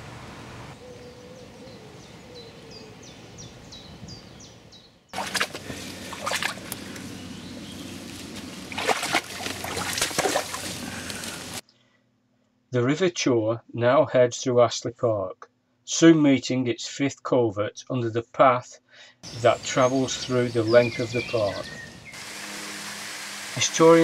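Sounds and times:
stream water trickling and splashing: 5.2s - 11.6s.

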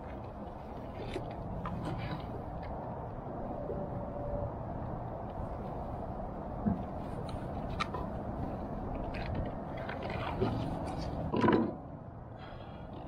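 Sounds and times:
fish and tackle handling clatter: 0.0s - 2.8s, 8.8s - 11.8s
low background noise: 0.0s - 13.0s.

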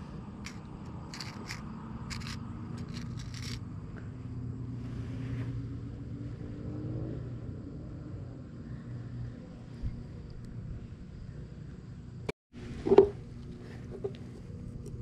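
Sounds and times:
engine droning: 0.0s - 15.0s
sharp clicks and scrapes: 0.4s - 3.6s.

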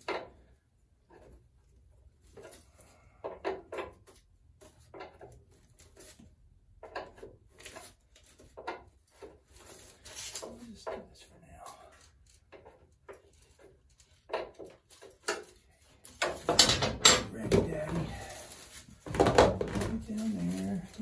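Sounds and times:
foil crinkling and rubbing: 17.7s - 21.0s.

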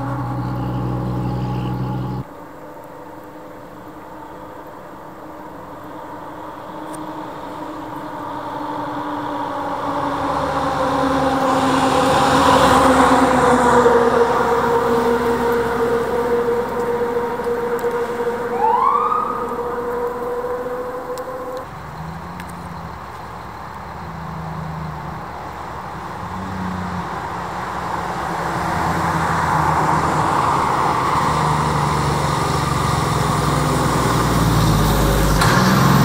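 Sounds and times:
siren whoop: 0.0s - 2.2s, 9.0s - 21.6s
emergency vehicle siren: 0.0s - 2.3s, 5.0s - 26.2s.

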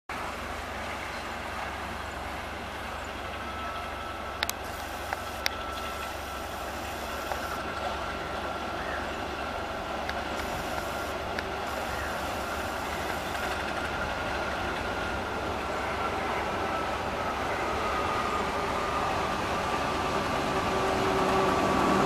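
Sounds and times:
distant locomotive engine running: 0.1s - 22.0s
faint steady whine: 0.5s - 9.3s, 10.1s - 13.8s.

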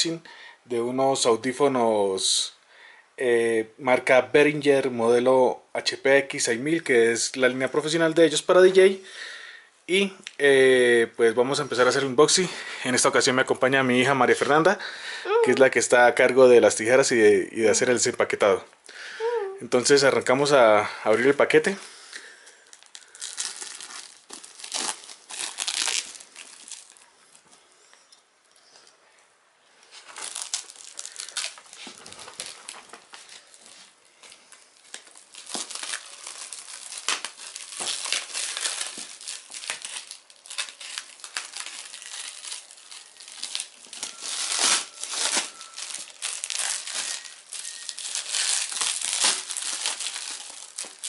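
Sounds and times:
plastic wrapping crinkling and tearing: 22.4s - 27.4s, 29.8s - 51.0s.

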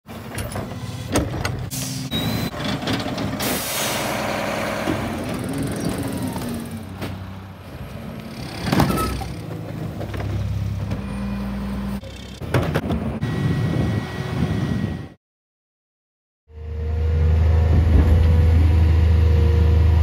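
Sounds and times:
diesel truck engines running: 0.1s - 15.1s.

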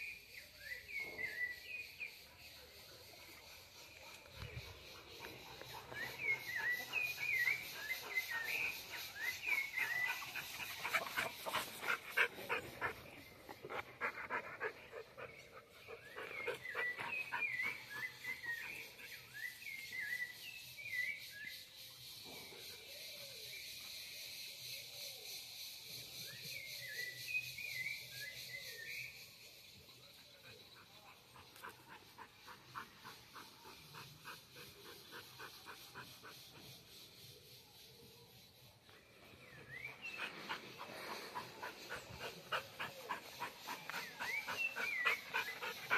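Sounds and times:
dogs panting: 2.2s - 19.3s, 30.4s - 36.9s, 39.6s - 45.9s
dogs sniffing: 39.7s - 45.9s.

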